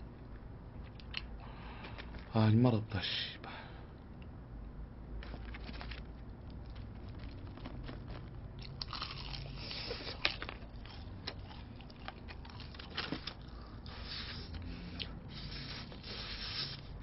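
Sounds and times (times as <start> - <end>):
crunchy chewing of fried chicken: 5.2 - 17.0.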